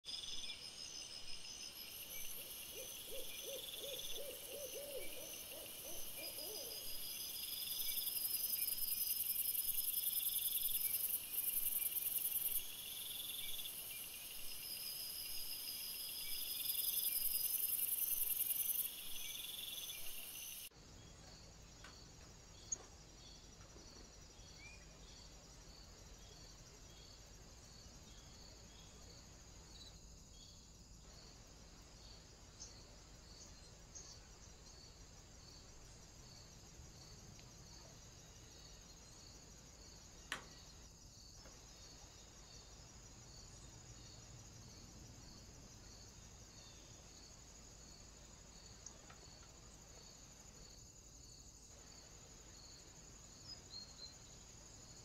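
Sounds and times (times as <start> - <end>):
night insects trilling: 0.1 - 21.1, 21.9 - 55.0
owl hooting: 2.7 - 7.0.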